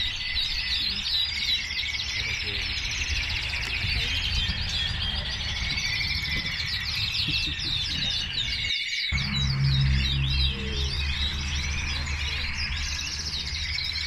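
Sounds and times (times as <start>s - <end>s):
canaries singing: 0.0s - 14.0s
low rumble: 9.2s - 14.0s.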